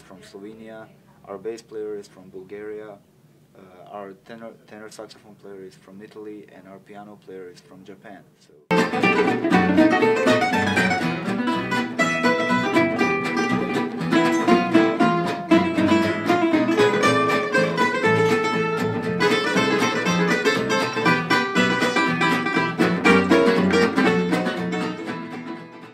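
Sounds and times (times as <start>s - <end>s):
acoustic guitar: 8.7s - 25.9s
plucked string melody: 8.7s - 25.9s
upright double bass: 8.7s - 25.9s.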